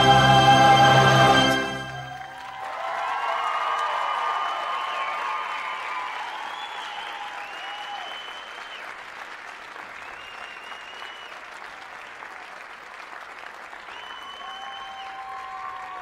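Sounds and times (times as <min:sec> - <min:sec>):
high held calls from crowd: 0:00.0 - 0:08.7, 0:13.9 - 0:16.0
audience applauding: 0:00.0 - 0:16.0.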